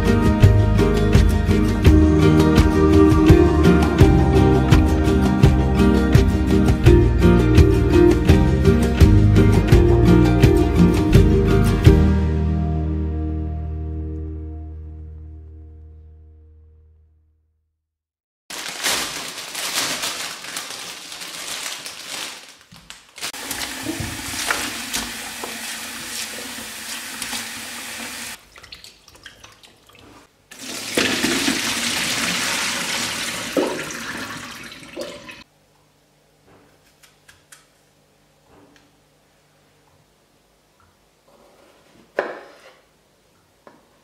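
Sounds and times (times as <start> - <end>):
tap water splashing on fruit: 23.4 - 30.2, 33.4 - 34.0.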